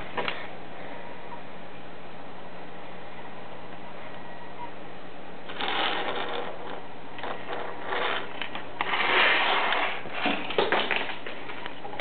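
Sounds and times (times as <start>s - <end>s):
rubbing against microphone: 5.5s - 10.4s.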